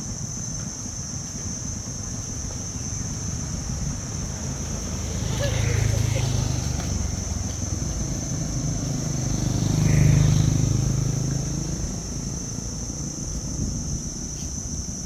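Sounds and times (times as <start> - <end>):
vehicle engine passing: 2.2 - 13.8.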